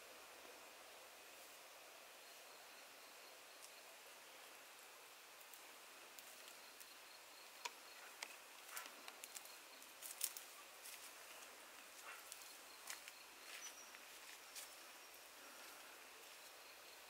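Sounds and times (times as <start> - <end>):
faint insect hum: 0.0 - 17.0.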